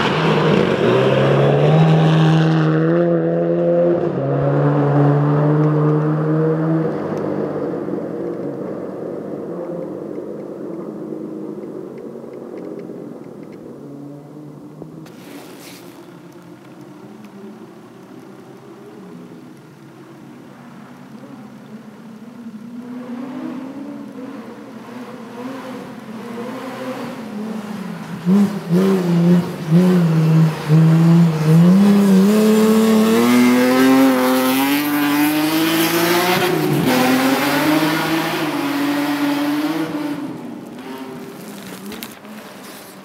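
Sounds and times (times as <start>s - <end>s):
rally car engine revving: 0.0s - 11.6s, 21.1s - 43.0s.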